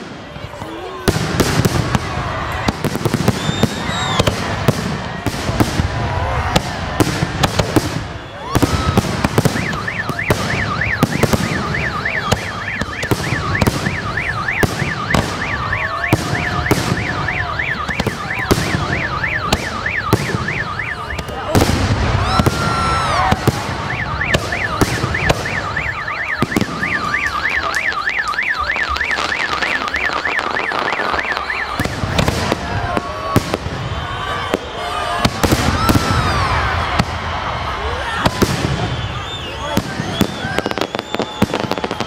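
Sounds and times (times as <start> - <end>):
fireworks bangs and crackle: 0.0 - 42.0
car alarm warbling: 9.4 - 21.5, 22.4 - 32.3.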